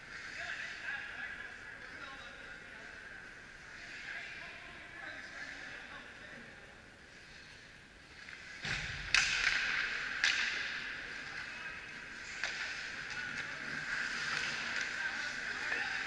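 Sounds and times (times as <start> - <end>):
hockey sticks and puck clacking: 8.2 - 16.0
skate blades scraping ice: 12.0 - 16.0.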